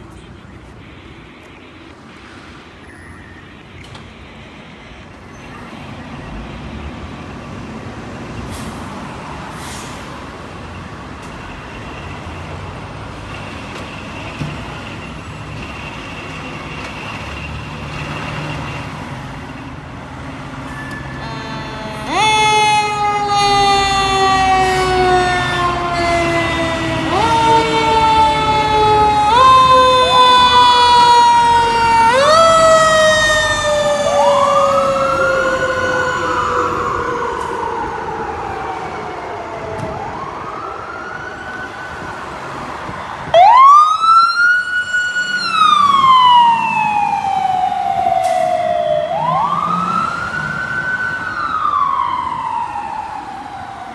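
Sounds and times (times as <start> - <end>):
diesel engines running: 0.0 - 38.8
fire truck siren: 0.0 - 53.9
second siren: 20.5 - 53.9.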